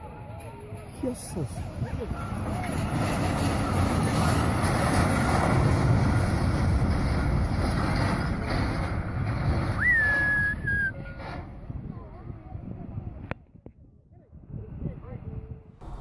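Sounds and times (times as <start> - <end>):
wind buffeting microphone: 0.2 - 16.0
lorry rumbling and grinding: 1.3 - 12.4, 15.8 - 16.0
short high whistle: 9.8 - 11.2.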